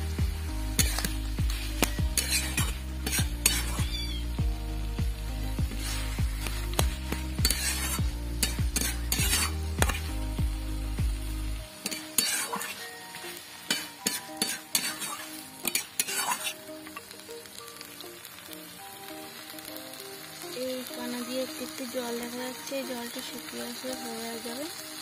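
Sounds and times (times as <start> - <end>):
light sizzle: 0.0 - 25.0
metal spatula scraping pan: 0.8 - 4.3, 5.7 - 10.1, 11.8 - 13.0, 13.6 - 17.0.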